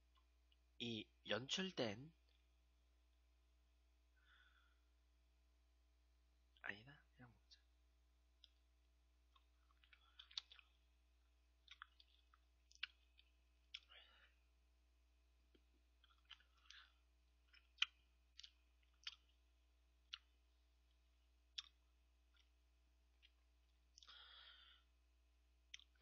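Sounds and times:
wet mouth sounds eating: 9.3s - 10.9s, 11.6s - 13.9s, 15.5s - 20.4s, 21.5s - 22.6s.

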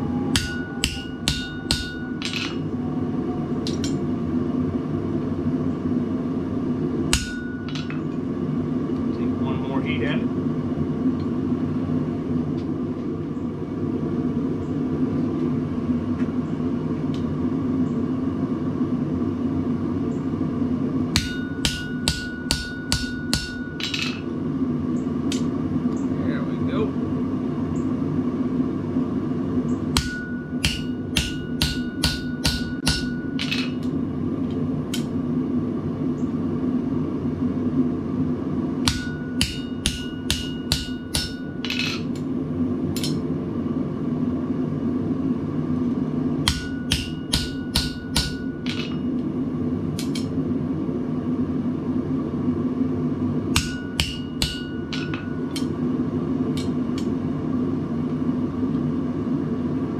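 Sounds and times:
hammer striking punch on anvil: 0.3s - 2.6s, 7.1s - 8.0s, 21.2s - 24.2s, 30.0s - 33.8s, 38.8s - 42.1s, 46.4s - 49.0s, 53.5s - 55.7s.

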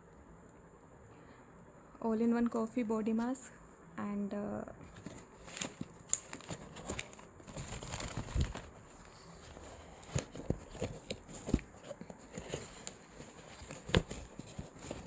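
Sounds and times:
cardboard box being handled: 4.9s - 15.0s.

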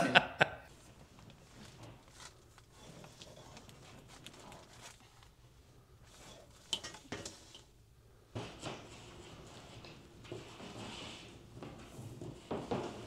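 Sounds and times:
rod tapping and scraping drywall: 6.1s - 7.7s, 8.4s - 13.0s.

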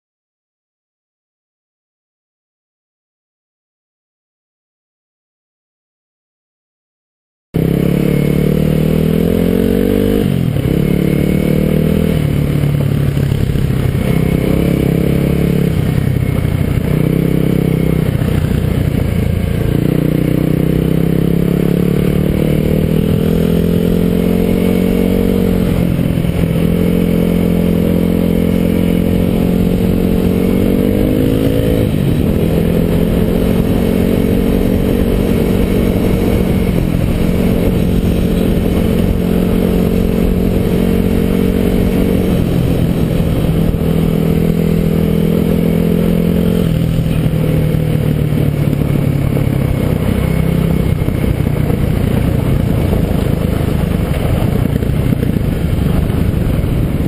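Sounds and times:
motorcycle engine revving: 7.6s - 57.0s.

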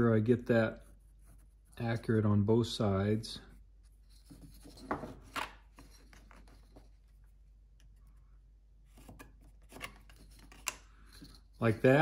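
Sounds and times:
pencil scratching: 0.5s - 2.0s.

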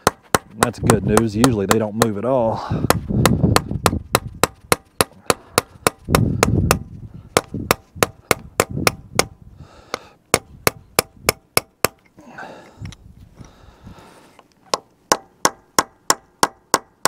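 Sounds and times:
hammer tapping on steel chisel: 0.0s - 2.2s.

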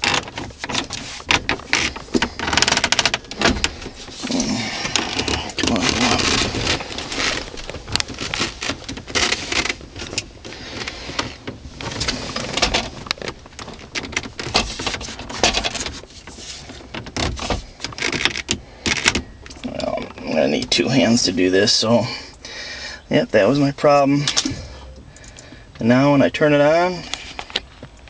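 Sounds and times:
plastic trim clicks and scraping: 0.0s - 20.7s, 24.2s - 25.4s.

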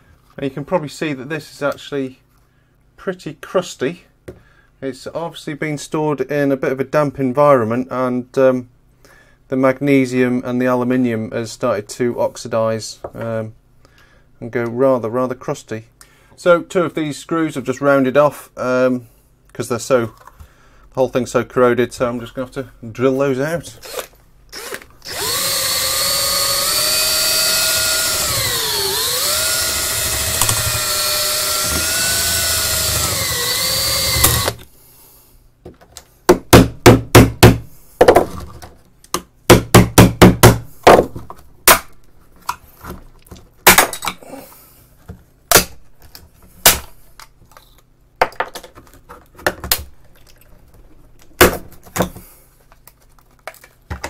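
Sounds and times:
power drill running: 24.6s - 34.6s.

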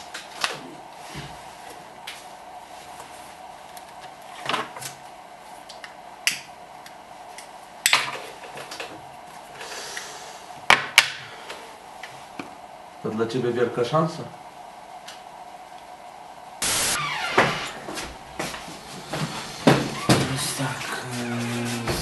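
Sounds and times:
faint steady hum: 0.0s - 22.0s.

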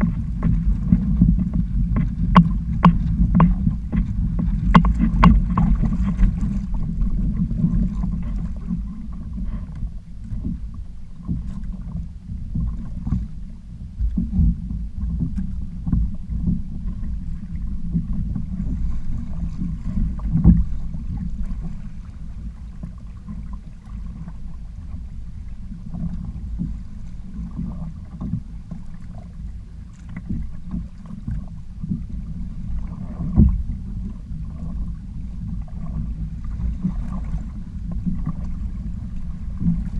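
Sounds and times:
sharp thumps: 0.0s - 6.8s
water washing against hulls: 0.0s - 39.9s
wind rumbling on microphone: 0.0s - 39.9s.

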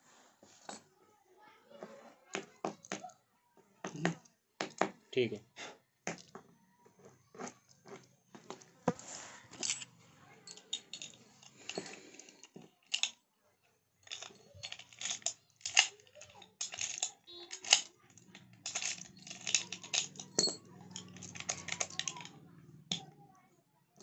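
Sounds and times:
metal objects clinking on floor: 9.5s - 13.2s, 14.0s - 23.0s.

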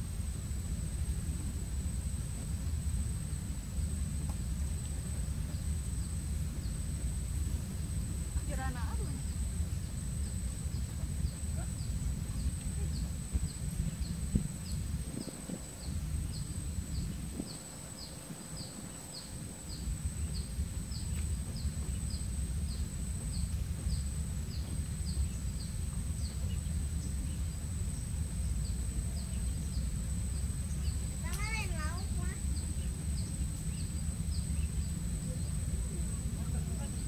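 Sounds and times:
high insect drone: 0.0s - 37.0s
wind rumbling on microphone: 0.0s - 37.0s
small bird chirping: 8.6s - 36.0s.

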